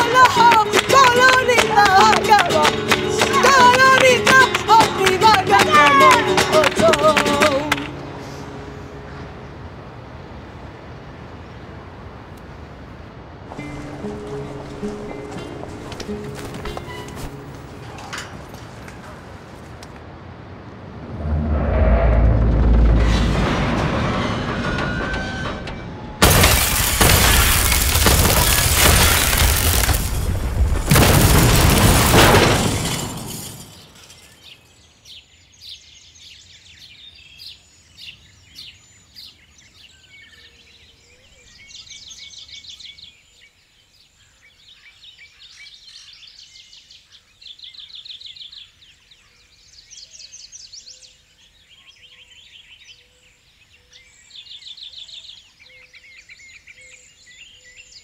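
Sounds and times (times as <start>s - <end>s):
harsh crashing rumble: 20.4s - 33.8s.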